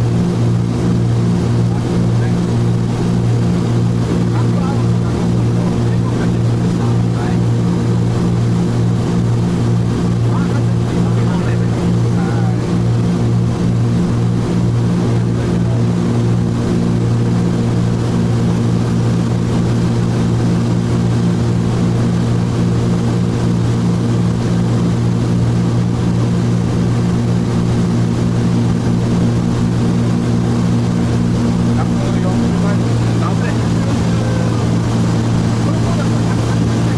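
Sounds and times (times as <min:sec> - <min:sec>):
aircraft cabin engine drone: 0:00.0 - 0:36.9.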